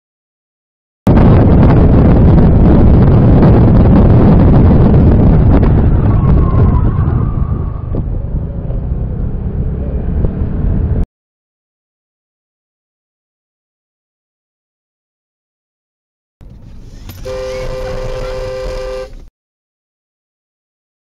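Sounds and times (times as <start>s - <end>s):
car road and wind noise: 1.1s - 11.1s, 16.4s - 19.3s.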